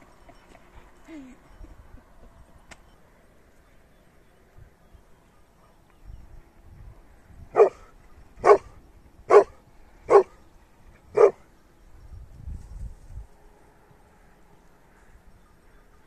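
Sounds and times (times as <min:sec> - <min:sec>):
dog barking: 0:07.6 - 0:08.7, 0:09.3 - 0:10.4, 0:11.2 - 0:11.4.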